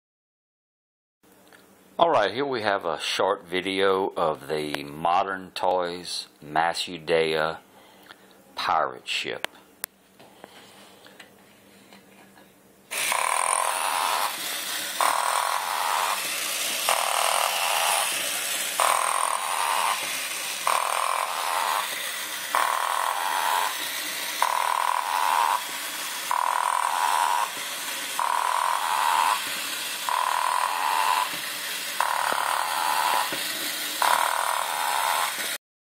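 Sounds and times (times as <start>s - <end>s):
toy motor whirring: 12.9s - 35.6s.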